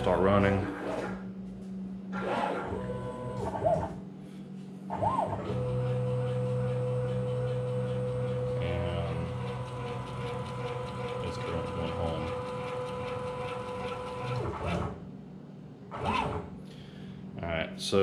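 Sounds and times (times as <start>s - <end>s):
stepper motor whine: 0.0s - 4.1s, 4.9s - 15.0s.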